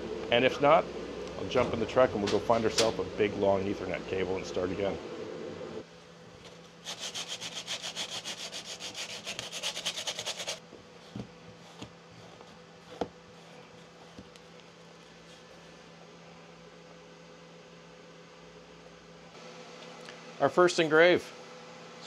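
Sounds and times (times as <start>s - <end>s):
cloth rubbing on wooden board: 6.9s - 10.6s.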